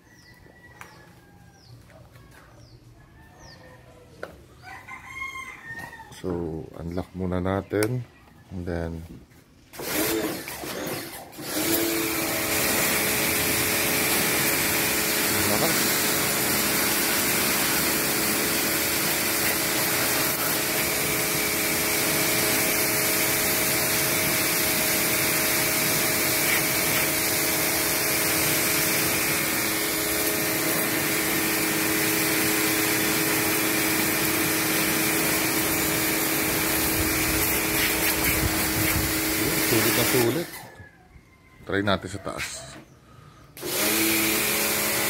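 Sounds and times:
pressure washer motor humming: 9.7s - 40.7s, 43.6s - 45.0s
high-pressure water jet hissing: 9.8s - 40.6s, 43.6s - 45.0s.

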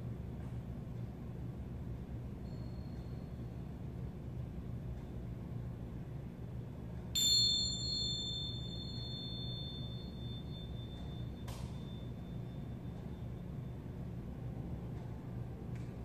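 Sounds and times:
hand cymbals ringing: 2.4s - 3.5s, 7.2s - 13.7s
light metal clink: 7.2s - 12.1s.

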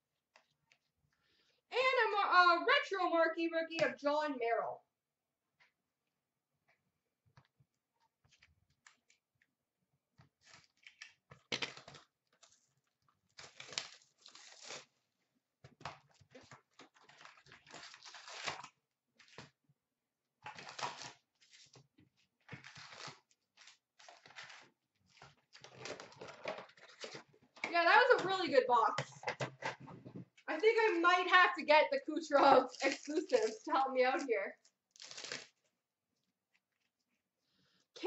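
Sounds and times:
wrappers tearing and crinkling: 13.3s - 15.0s, 16.4s - 19.5s, 20.5s - 21.8s, 22.4s - 27.2s, 32.4s - 34.3s, 34.9s - 35.6s.

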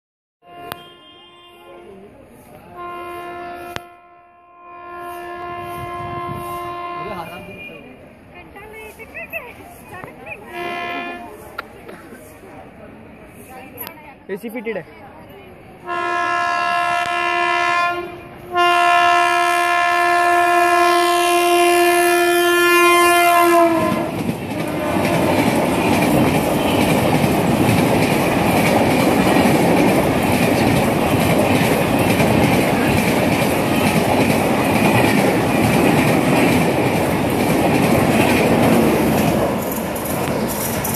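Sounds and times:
locomotive horn blasts: 0.4s - 2.0s, 2.7s - 7.8s, 10.5s - 11.4s, 15.8s - 25.6s, 26.5s - 27.0s
train rumble and wheel clatter: 0.5s - 40.9s.

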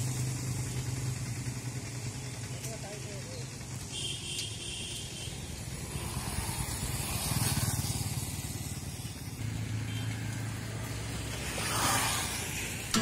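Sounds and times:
motor vehicle passing: 5.4s - 13.0s.

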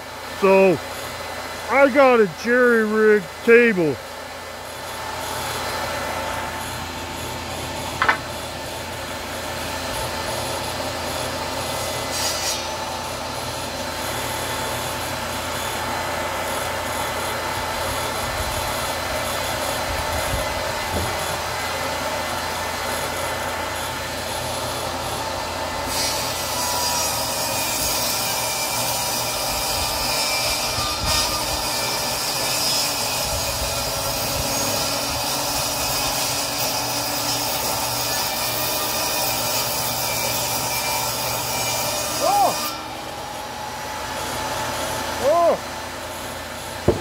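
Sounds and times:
table saw cutting wood: 0.0s - 47.0s
sharp knock: 8.0s - 8.3s.

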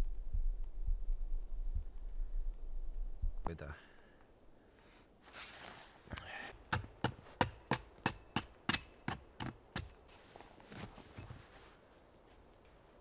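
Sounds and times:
hand tool striking wood: 6.5s - 10.0s.

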